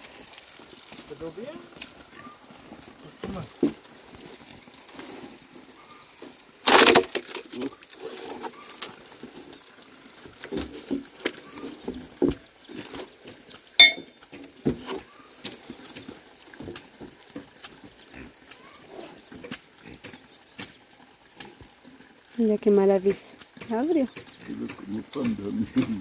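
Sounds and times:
sharp clink: 13.8s - 14.1s.

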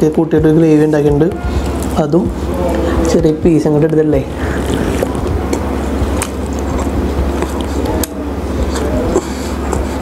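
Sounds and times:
steady low hum: 0.0s - 10.0s
man chewing food: 4.5s - 10.0s.

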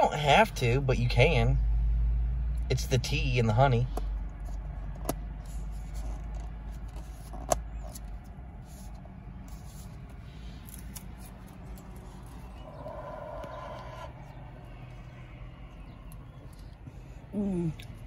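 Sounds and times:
car interior hum: 0.0s - 18.0s.

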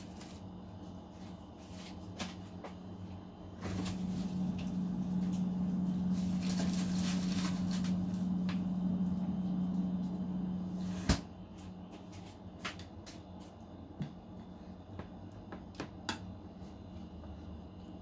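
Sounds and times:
electrical hum: 0.0s - 18.0s.

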